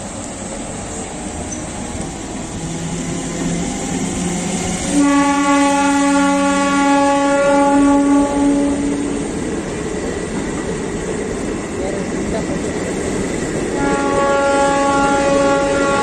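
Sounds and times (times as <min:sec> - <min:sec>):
train coaches running past: 0:00.0 - 0:16.0
train horn blast: 0:04.9 - 0:09.3, 0:13.8 - 0:16.0.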